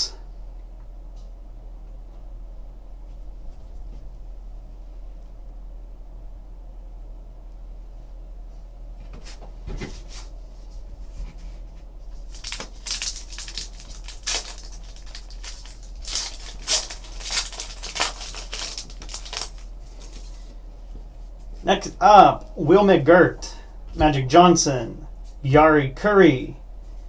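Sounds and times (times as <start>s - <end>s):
wrapper crinkling and tearing: 12.2s - 20.3s.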